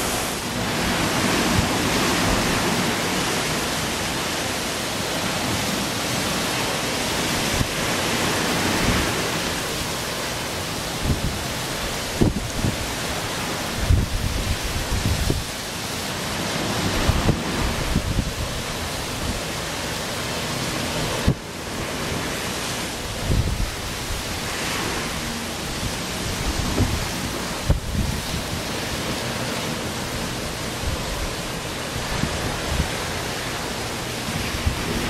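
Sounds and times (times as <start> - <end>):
wind rushing over microphone: 0.0 - 35.0
low buffeting thumps from gusts: 25.7 - 28.7.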